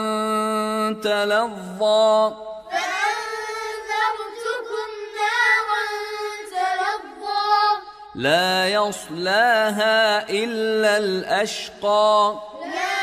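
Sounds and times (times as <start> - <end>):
man chanting: 0.0 - 2.6, 8.2 - 12.6
child chanting: 2.7 - 7.9, 12.4 - 13.0.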